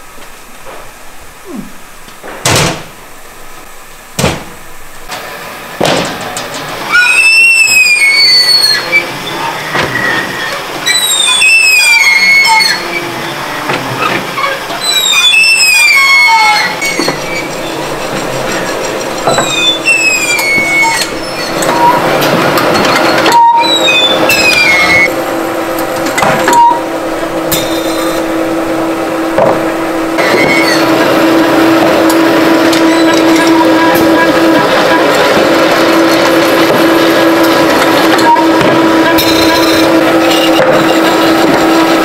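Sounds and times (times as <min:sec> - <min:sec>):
steady machine hum: 0:00.0 - 0:42.0
sharp knocks: 0:04.2 - 0:04.6, 0:05.8 - 0:06.3, 0:29.4 - 0:30.6
metal frame squealing: 0:06.4 - 0:42.0.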